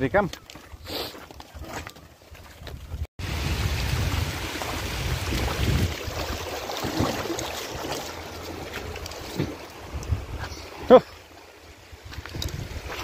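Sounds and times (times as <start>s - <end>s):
wind buffeting microphone: 2.4s - 7.8s, 8.6s - 10.8s, 11.7s - 13.0s.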